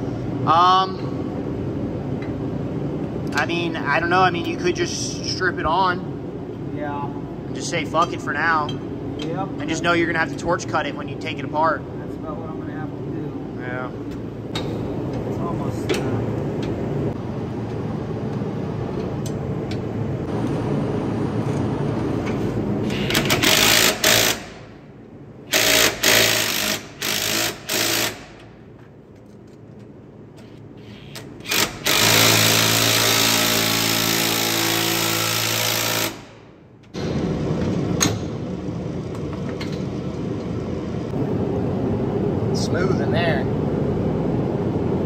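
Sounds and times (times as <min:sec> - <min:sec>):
steady low hum: 0:00.0 - 0:45.0
impact wrench hammering: 0:22.9 - 0:24.7, 0:25.5 - 0:28.5, 0:31.2 - 0:36.4.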